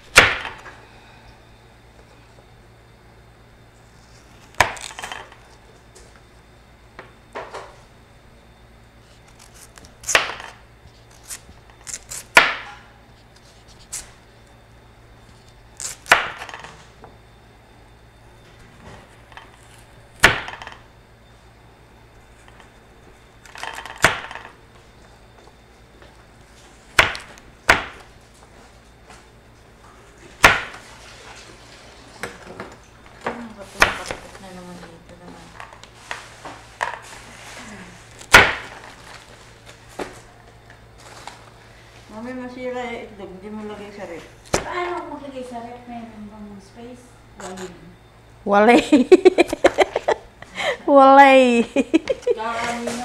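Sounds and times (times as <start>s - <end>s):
knife scraping: 9.0s - 10.2s, 10.9s - 12.4s.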